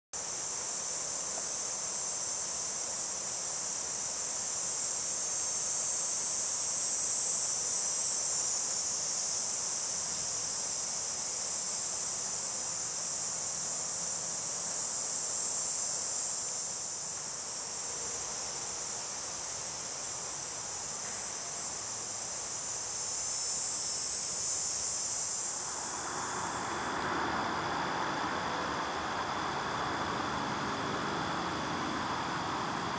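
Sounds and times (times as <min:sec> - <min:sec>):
insect chorus: 0:00.2 - 0:32.9
low rushing noise: 0:25.4 - 0:32.9.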